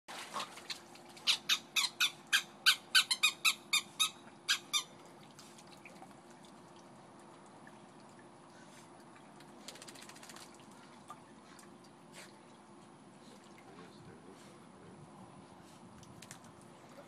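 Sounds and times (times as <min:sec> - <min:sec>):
faint steady hum: 0:00.1 - 0:17.0
high squeaky animal calls: 0:01.2 - 0:04.9.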